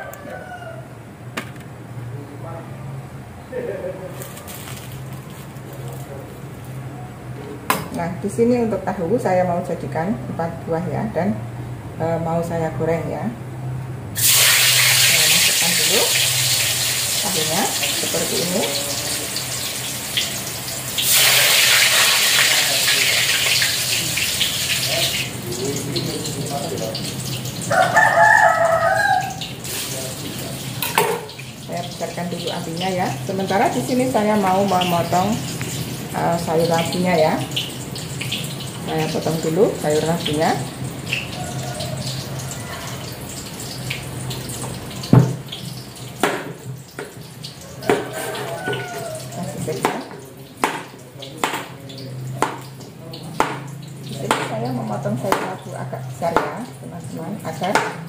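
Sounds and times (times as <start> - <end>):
tofu sizzling in hot oil: 14.2 - 50.7
knife chopping on plastic board: 50.6 - 51.7, 52.4 - 52.6, 53.4 - 53.7.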